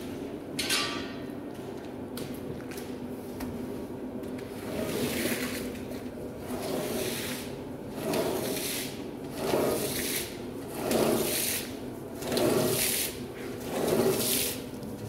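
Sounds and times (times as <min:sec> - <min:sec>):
brush scrubbing wet rug: 0:04.6 - 0:05.7, 0:06.4 - 0:14.8.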